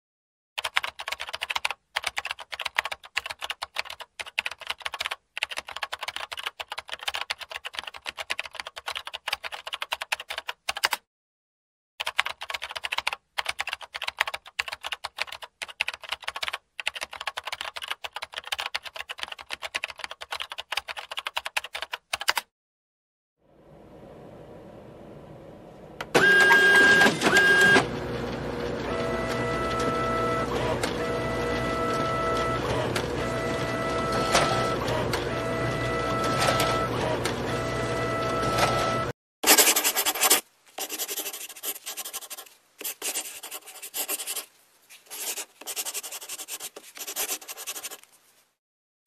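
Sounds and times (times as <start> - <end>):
faint steady hiss: 44.4 - 45.1.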